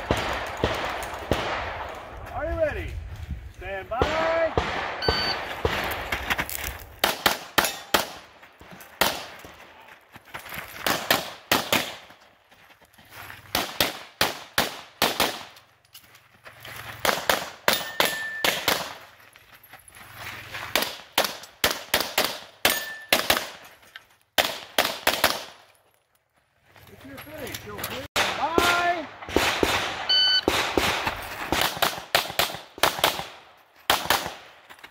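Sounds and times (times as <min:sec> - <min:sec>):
pistol shots: 0:00.0 - 0:02.1, 0:04.0 - 0:06.1, 0:07.0 - 0:08.3, 0:10.8 - 0:12.0, 0:13.5 - 0:15.6, 0:17.0 - 0:19.0, 0:20.8 - 0:23.6, 0:24.4 - 0:25.6, 0:28.2 - 0:34.5
shot timer beep: 0:05.0 - 0:05.4, 0:30.1 - 0:30.5.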